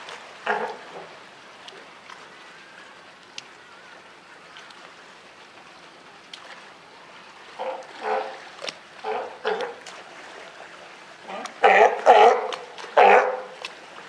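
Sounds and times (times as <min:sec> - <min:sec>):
trickle of running water: 0:00.0 - 0:14.0
sea lion pup call: 0:00.4 - 0:00.9, 0:07.5 - 0:08.4, 0:09.0 - 0:09.8, 0:11.3 - 0:13.6
faint clicks: 0:03.2 - 0:03.6.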